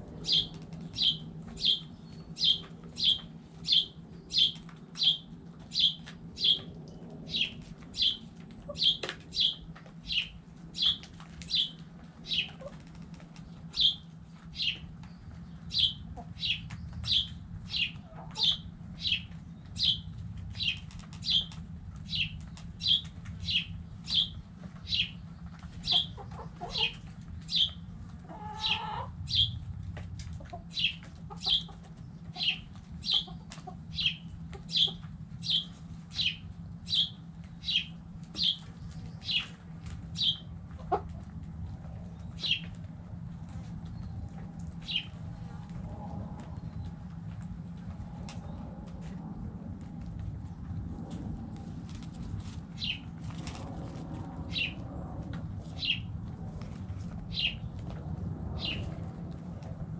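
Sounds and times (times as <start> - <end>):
steady low hum: 0.0 - 59.9
small bird chirping: 0.2 - 6.7, 7.3 - 12.6, 13.7 - 14.0, 14.6 - 21.5, 22.1 - 27.8, 28.6 - 29.6, 30.7 - 31.7, 32.3 - 39.6, 40.2 - 40.4, 42.2 - 42.7, 44.8 - 45.2, 52.8 - 53.0, 58.6 - 58.8.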